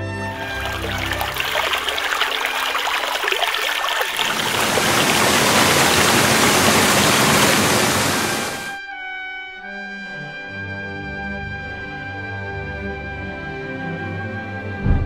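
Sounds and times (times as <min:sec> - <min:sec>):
rushing water: 0:00.3 - 0:08.8.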